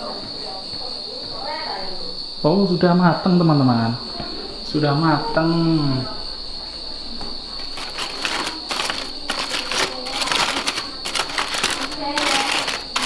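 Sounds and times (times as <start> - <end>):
aluminium foil crinkling: 7.6 - 13.0.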